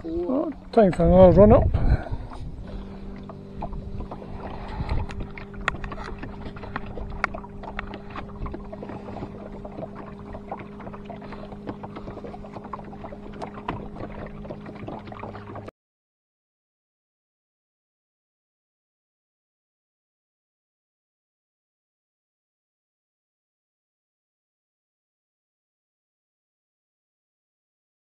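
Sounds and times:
outboard motor running: 0.0s - 15.7s
water splashing against hull: 0.0s - 15.7s.

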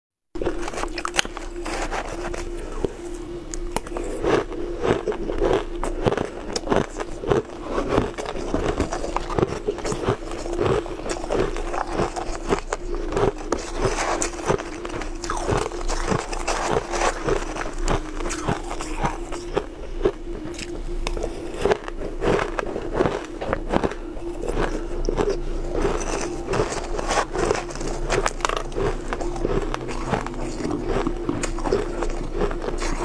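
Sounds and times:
crushed ice being chewed: 0.4s - 33.0s.

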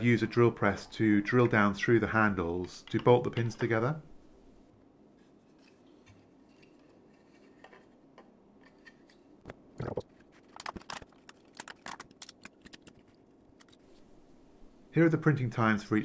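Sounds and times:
plastic pieces clicking together: 10.5s - 13.8s.

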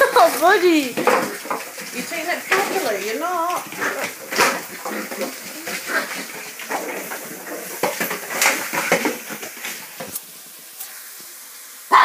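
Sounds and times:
dog claws on tiled floor: 1.0s - 10.2s.

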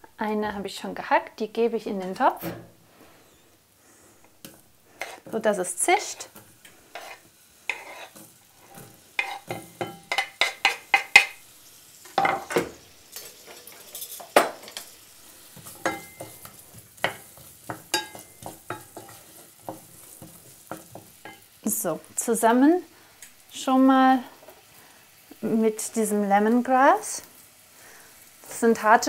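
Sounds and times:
onion sizzling in oil: 0.2s - 29.0s
wooden spoon stirring: 4.4s - 11.3s.

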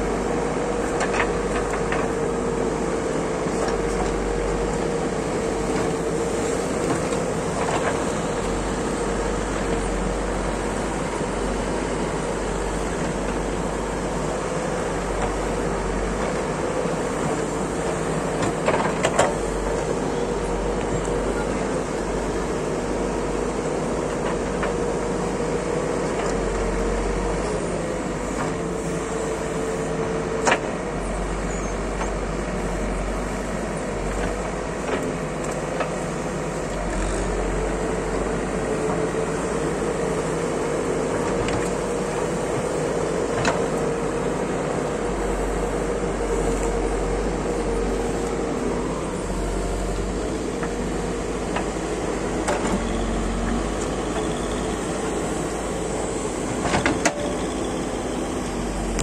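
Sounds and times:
backhoe digging soil: 0.0s - 59.0s
diesel engine running: 0.0s - 59.0s.

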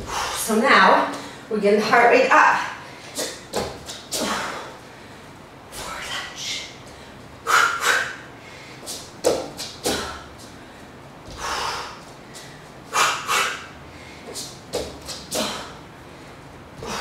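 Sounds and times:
woman exhaling forcefully: 0.0s - 0.5s, 7.4s - 8.7s, 11.3s - 12.0s, 12.9s - 14.2s, 16.8s - 17.0s.

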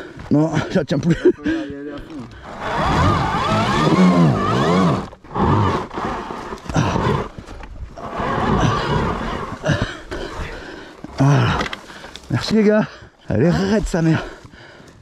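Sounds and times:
men grunting with strain: 6.6s - 7.3s, 8.4s - 14.4s.

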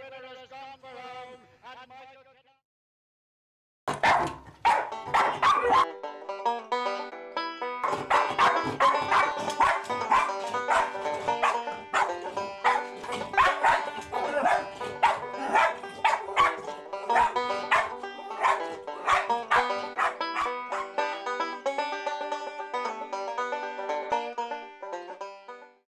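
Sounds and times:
dog barking: 3.9s - 5.9s, 7.8s - 21.0s
banjo music: 3.9s - 25.8s.

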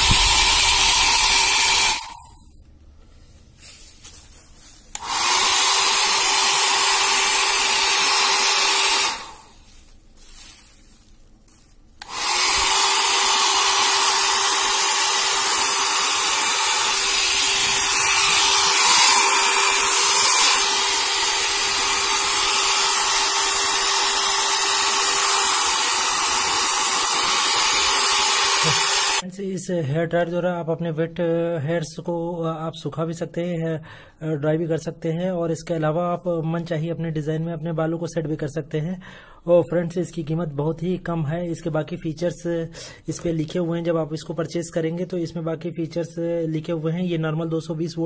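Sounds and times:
hair dryer running: 0.0s - 2.4s, 4.9s - 10.5s, 12.0s - 29.2s.

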